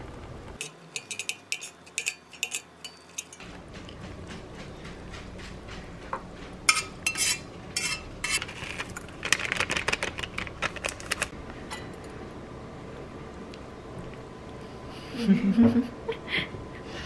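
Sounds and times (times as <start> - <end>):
metal chopsticks clinking on pot: 0.6 - 3.4.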